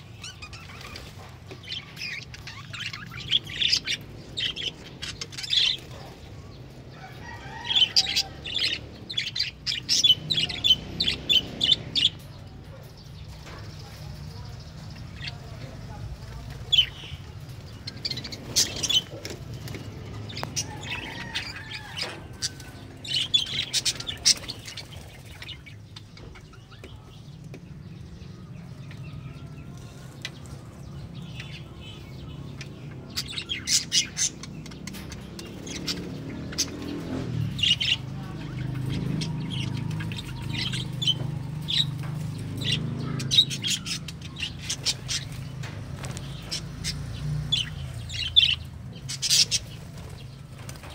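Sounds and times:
budgerigars chirping: 0:00.0 - 0:06.3, 0:06.9 - 0:12.4, 0:20.2 - 0:27.1, 0:30.4 - 0:50.3.

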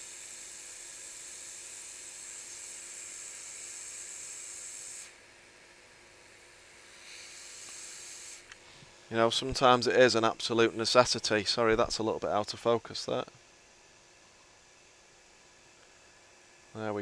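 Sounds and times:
hot air nozzle hissing: 0:00.0 - 0:05.2, 0:06.8 - 0:08.6.

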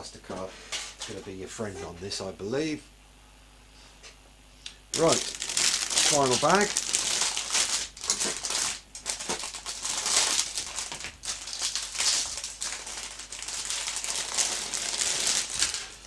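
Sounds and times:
plastic bag crinkling: 0:04.9 - 0:16.0.

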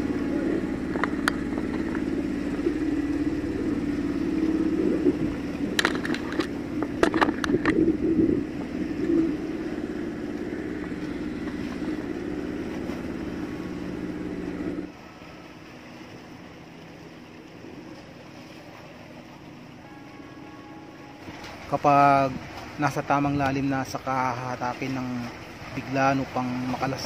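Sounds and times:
small boat engine droning: 0:00.0 - 0:27.0
sharp knocks or splashes: 0:00.8 - 0:03.0, 0:05.0 - 0:13.4.

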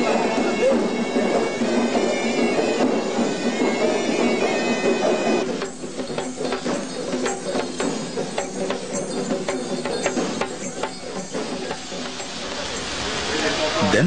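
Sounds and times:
reedy wind instrument melody: 0:00.0 - 0:06.0
drums quick strokes: 0:00.0 - 0:14.0.

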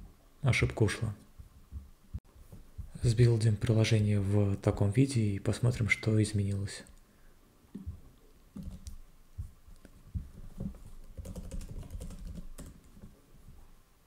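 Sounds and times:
computer keyboard typing: 0:08.6 - 0:09.0, 0:10.6 - 0:13.1.

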